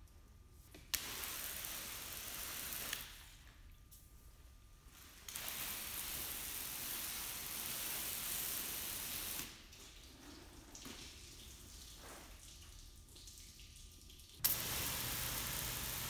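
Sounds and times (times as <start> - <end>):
hose nozzle spraying water: 14.4 - 16.0.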